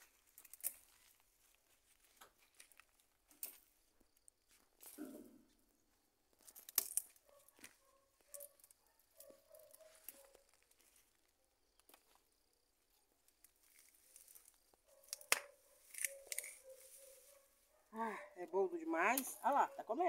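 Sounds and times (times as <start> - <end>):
leaves rustling: 0.0 - 3.8, 13.5 - 14.7, 15.7 - 17.8
plant stems snapping: 0.3 - 0.9, 6.4 - 7.2, 13.3 - 16.6.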